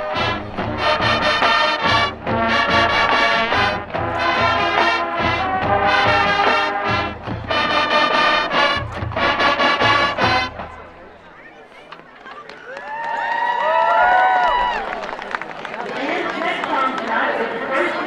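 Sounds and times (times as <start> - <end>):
marching band playing: 0.0 - 11.4.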